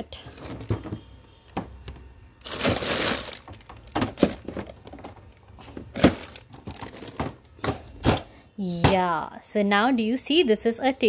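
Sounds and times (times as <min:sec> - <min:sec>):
plastic rustling clatter: 0:02.4 - 0:08.2.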